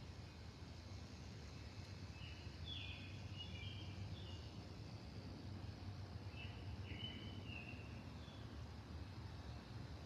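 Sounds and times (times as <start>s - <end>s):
songbird chirping: 1.6s - 4.6s, 6.2s - 8.6s.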